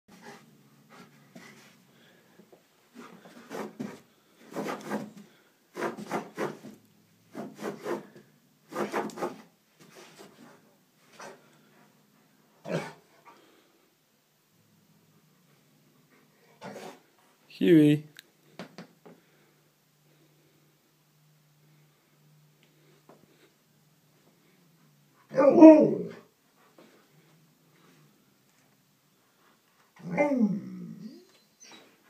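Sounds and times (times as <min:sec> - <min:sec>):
dog grumbling and huffing: 0:12.6 - 0:13.0, 0:30.0 - 0:31.2.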